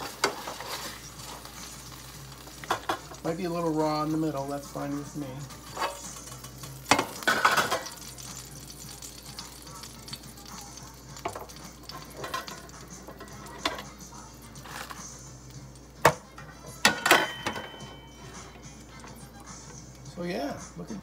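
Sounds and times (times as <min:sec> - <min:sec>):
faint background music: 0:00.0 - 0:21.0.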